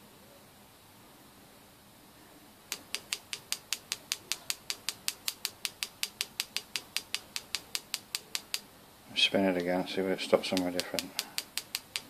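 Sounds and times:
rapid even clicking: 2.7s - 8.7s, 9.6s - 12.0s.

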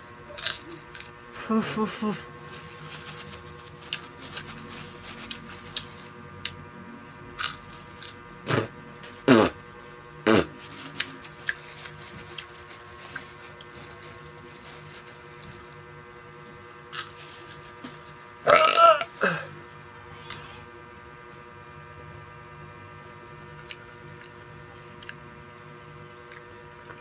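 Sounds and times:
electrical hum: 0.0s - 27.0s
plastic bag crinkling: 2.4s - 6.2s, 7.4s - 8.2s, 10.5s - 15.8s, 16.9s - 18.3s
small clicks of eating: 25.0s - 25.5s, 26.2s - 27.0s.

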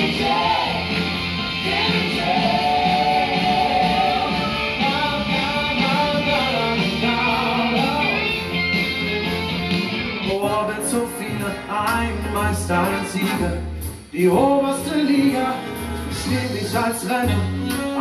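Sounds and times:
people singing into microphones: 0.0s - 8.5s, 10.3s - 18.0s
amplified pop-rock music: 0.0s - 18.0s.

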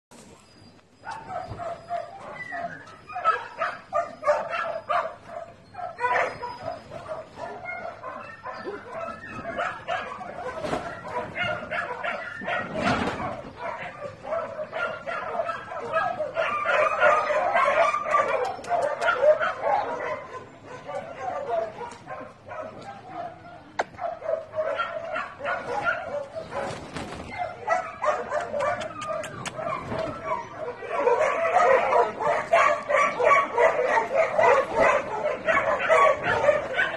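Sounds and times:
dogs barking and yipping: 0.2s - 36.9s
animal yips and whines: 0.3s - 5.0s, 6.0s - 14.0s, 25.7s - 30.6s.

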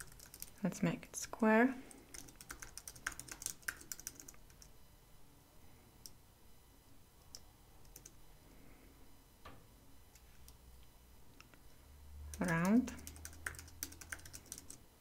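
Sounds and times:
typing on computer keyboard: 0.0s - 0.6s, 2.1s - 4.7s, 7.3s - 8.2s, 12.3s - 14.8s.

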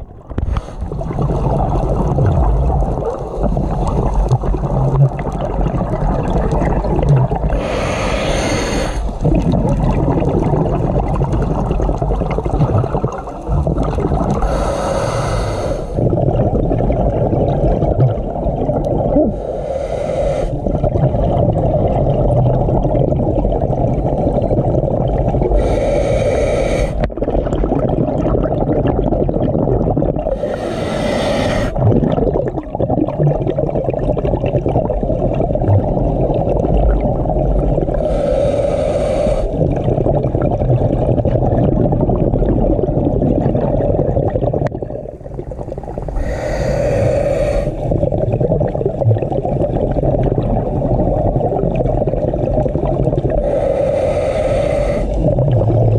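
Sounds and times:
low underwater rumble: 0.0s - 7.7s, 55.0s - 55.9s
exhaled bubbles from regulator: 0.0s - 55.9s.

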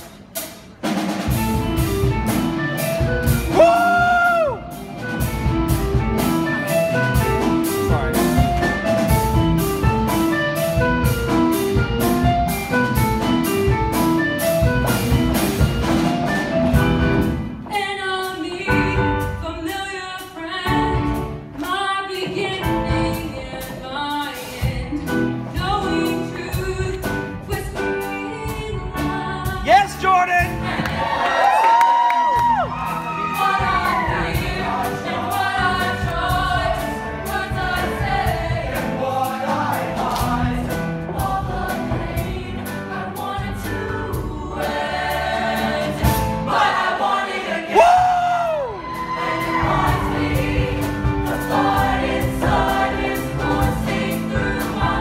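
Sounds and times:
choir singing: 30.4s - 31.4s, 32.9s - 55.0s.

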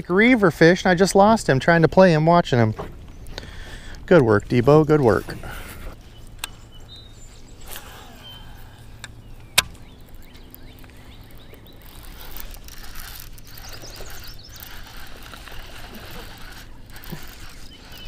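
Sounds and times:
fishing reel click: 11.3s - 18.0s.

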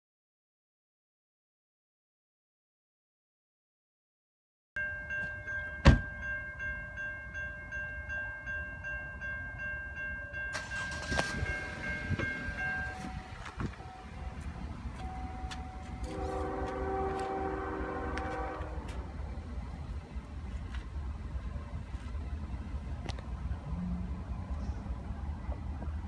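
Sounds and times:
outdoor background noise: 4.8s - 26.0s
distant locomotive air horn: 15.3s - 19.2s.

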